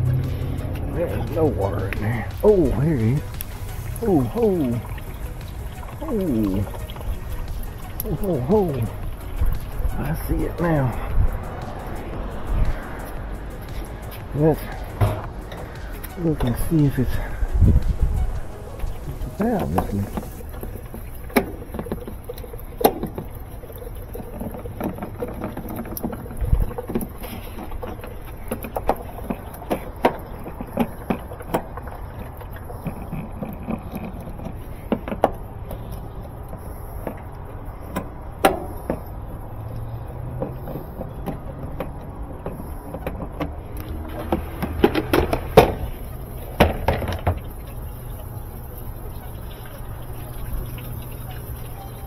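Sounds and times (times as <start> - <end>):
steady low rumble: 0.0 - 22.8.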